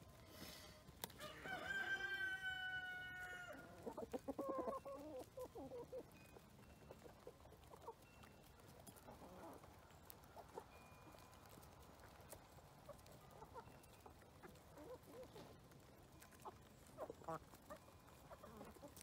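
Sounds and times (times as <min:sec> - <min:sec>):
chickens clucking: 0:00.0 - 0:19.0
rooster crowing: 0:01.2 - 0:03.7.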